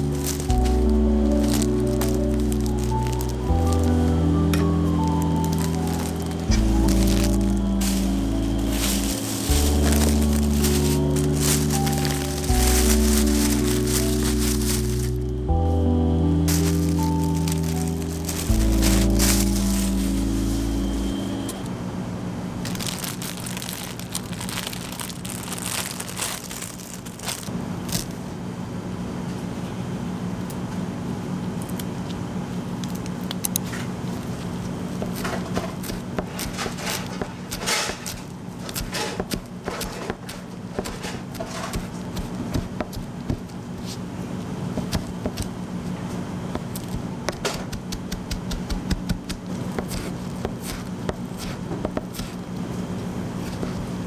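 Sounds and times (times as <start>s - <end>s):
rustling and crinkling: 0.0s - 15.3s, 16.5s - 21.1s, 22.6s - 28.2s
steady low hum: 0.0s - 54.0s
knife chopping on cutting board: 47.3s - 52.4s.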